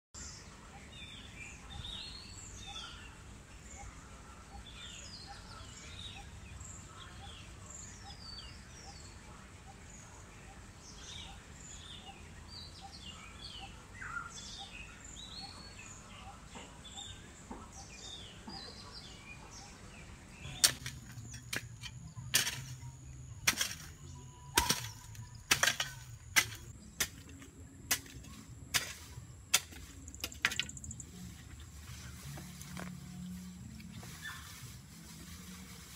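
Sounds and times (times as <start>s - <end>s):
birds chirping: 0.2s - 35.9s
hoe chopping into earth: 20.5s - 30.8s.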